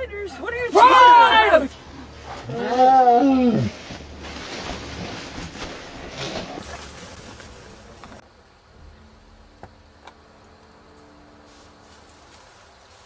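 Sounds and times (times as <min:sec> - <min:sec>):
rustling in tall grass: 0:03.3 - 0:08.2, 0:10.8 - 0:13.0.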